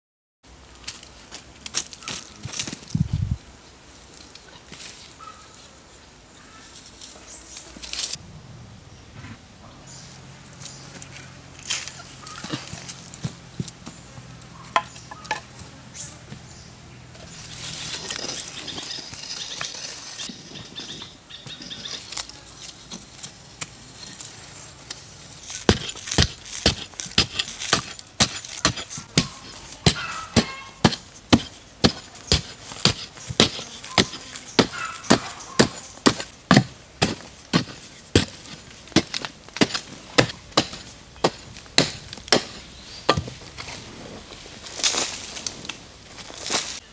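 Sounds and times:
rustling: 17.1s - 46.9s
digging tool chopping earth: 25.4s - 43.8s.

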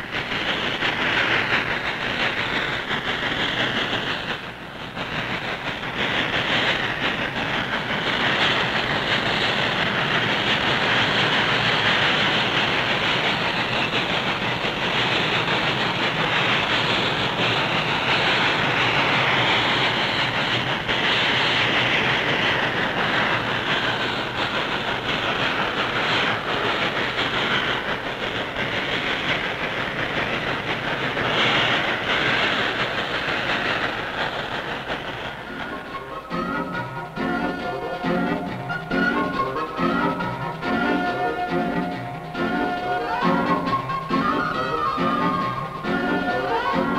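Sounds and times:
steam train passing: 0.0s - 46.9s
train cars clattering on rails: 0.0s - 46.9s.

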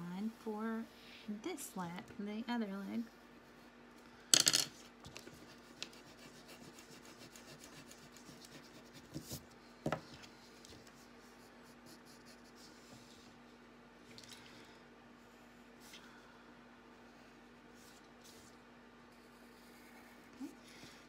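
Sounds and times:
pencil scratching on paper: 5.2s - 9.4s, 10.9s - 12.9s.

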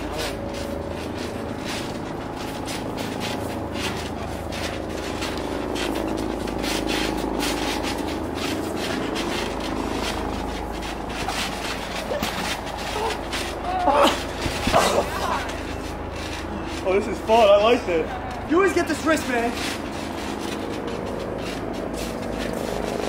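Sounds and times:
feet scuffing on trampoline mat: 0.0s - 23.0s
machinery engine drone: 0.0s - 23.0s.

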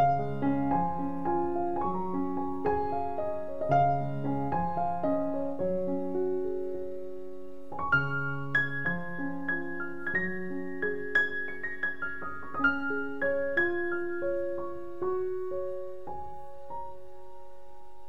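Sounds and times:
slow solo piano music: 0.0s - 18.0s.

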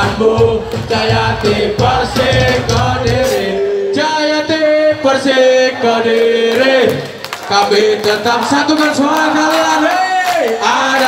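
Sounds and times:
live ska band playing: 0.0s - 5.1s
voices singing: 0.0s - 11.0s.

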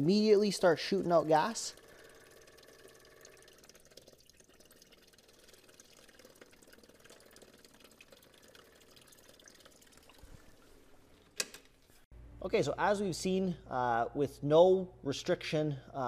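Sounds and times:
fuel trickling into glass beaker: 0.9s - 11.3s.

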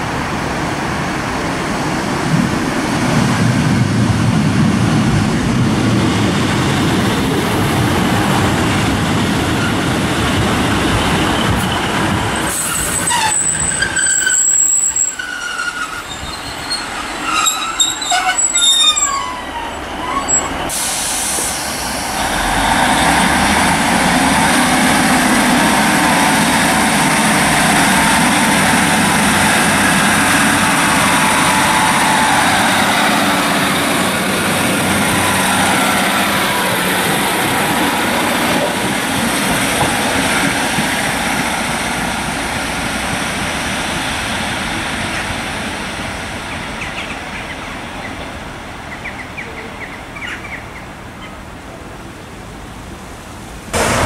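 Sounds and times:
train engine and wheels rumbling: 0.0s - 54.0s
metal wheel squeals: 12.7s - 20.7s.

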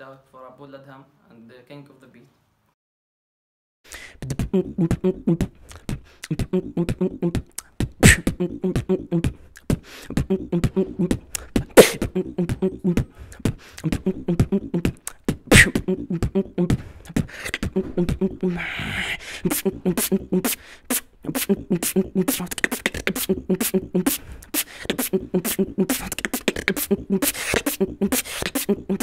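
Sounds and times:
man beatboxing: 3.9s - 29.0s
vocal snare hits: 3.9s - 29.0s
hummed bass line: 10.1s - 13.2s, 13.8s - 16.8s, 17.6s - 18.6s.

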